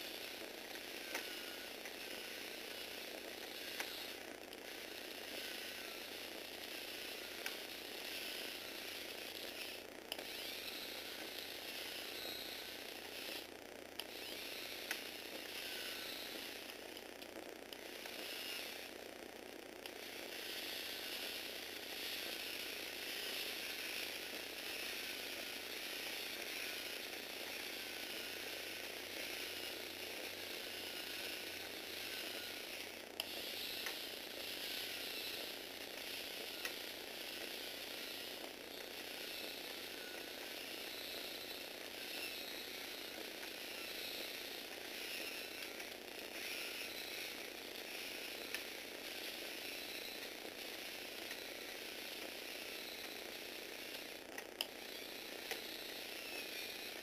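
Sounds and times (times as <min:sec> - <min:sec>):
motors whirring: 0:00.0 - 0:57.0
sharp clicks: 0:03.6 - 0:04.6, 0:09.3 - 0:10.4, 0:13.0 - 0:18.4.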